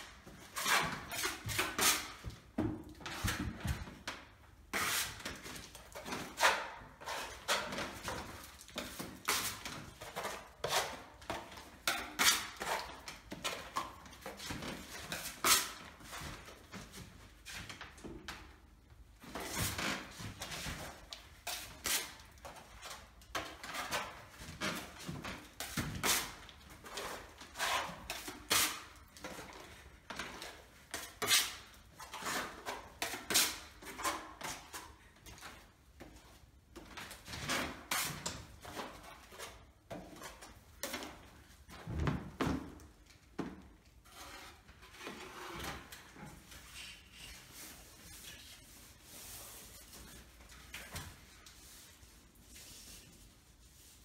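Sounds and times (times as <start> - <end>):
filling knife scraping plaster wall: 0.1 - 16.6, 19.4 - 35.3, 43.9 - 54.0.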